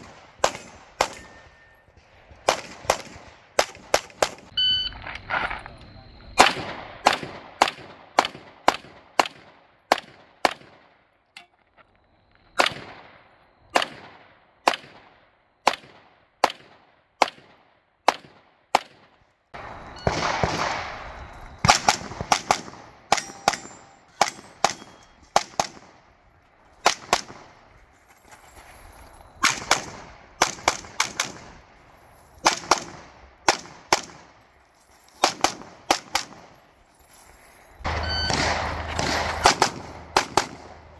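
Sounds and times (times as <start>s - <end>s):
pistol shots: 0.0s - 4.5s, 6.4s - 11.0s, 12.6s - 26.1s, 26.8s - 27.6s, 29.4s - 31.6s, 32.4s - 34.3s, 35.2s - 36.5s, 37.9s - 40.9s.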